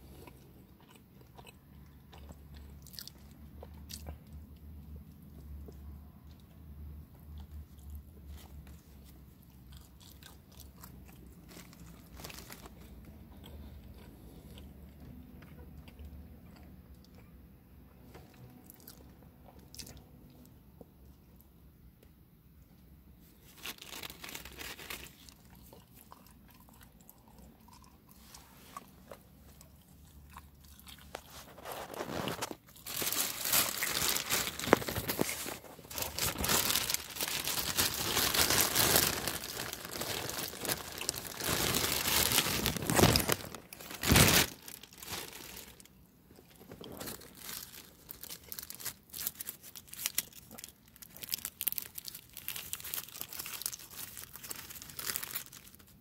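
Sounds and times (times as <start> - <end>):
plastic food packaging crinkling: 8.3 - 13.1, 23.3 - 26.6, 30.3 - 56.0.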